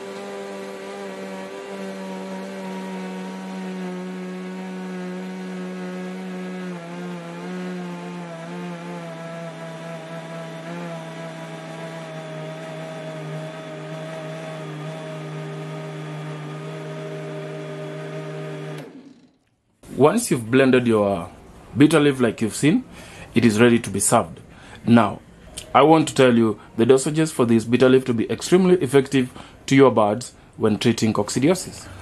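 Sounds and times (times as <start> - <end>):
blender motor running: 0.0 - 19.5.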